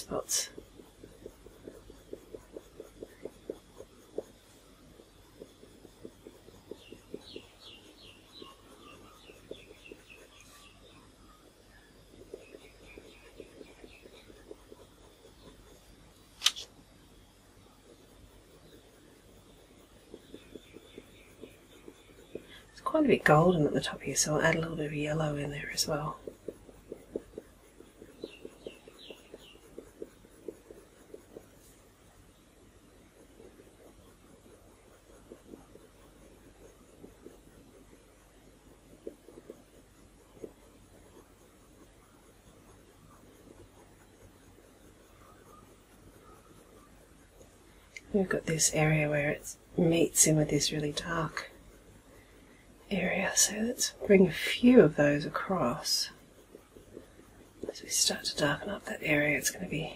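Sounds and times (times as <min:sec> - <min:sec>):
bird chirping faintly: 0:00.0 - 0:16.3, 0:16.9 - 0:59.9
pencil strokes on paper: 0:00.0 - 0:59.9
bird chirping: 0:06.3 - 0:14.5, 0:27.9 - 0:30.2.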